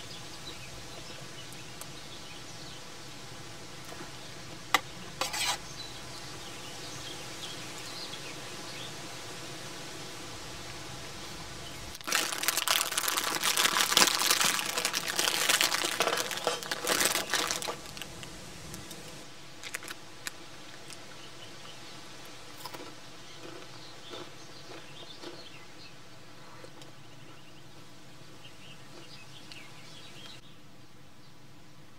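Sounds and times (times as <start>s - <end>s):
close crinkling and rustling: 12.0s - 21.0s.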